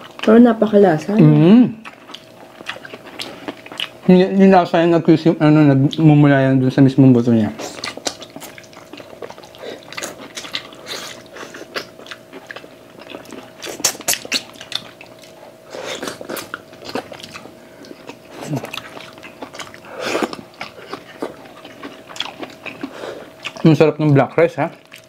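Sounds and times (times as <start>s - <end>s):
wet biting and chewing: 1.8s - 4.1s, 7.6s - 25.0s
mouth smacks and clicks: 13.6s - 14.9s.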